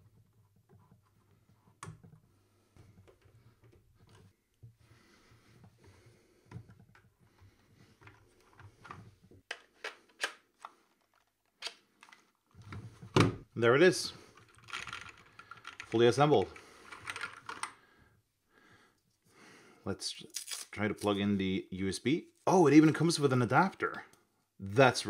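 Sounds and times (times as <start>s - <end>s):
handling plastic keyboard parts: 14.3s - 17.8s.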